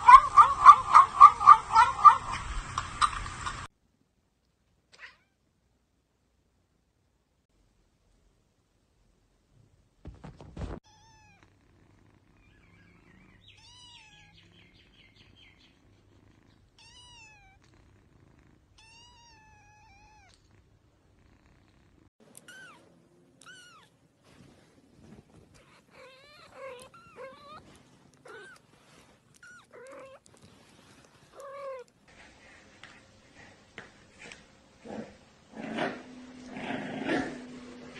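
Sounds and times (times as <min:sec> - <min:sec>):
brief thump: 0:10.0 - 0:10.8.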